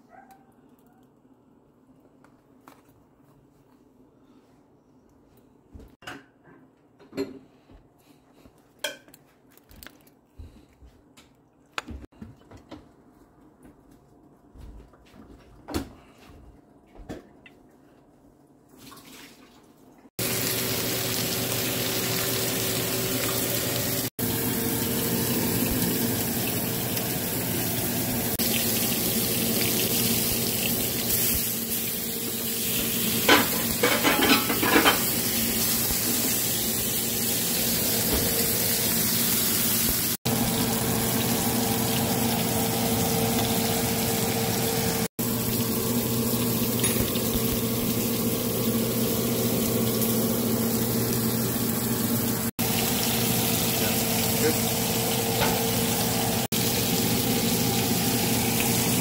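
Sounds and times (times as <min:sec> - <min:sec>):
steaks sizzling in grill pan: 0:20.2 - 0:59.0.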